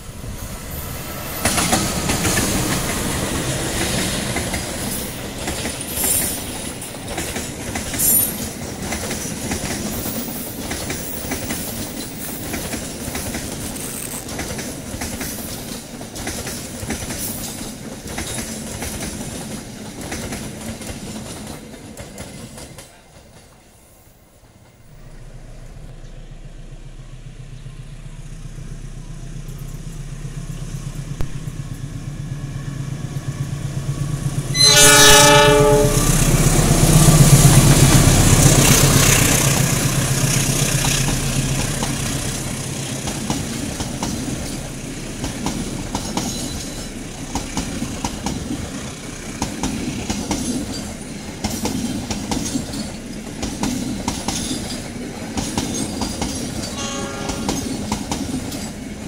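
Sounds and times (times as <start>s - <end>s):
wheels clacking over rail joints: 1.1s - 23.6s, 33.1s - 59.0s
locomotive engine drone: 24.6s - 59.0s
train horn: 34.5s - 37.9s, 56.6s - 57.9s.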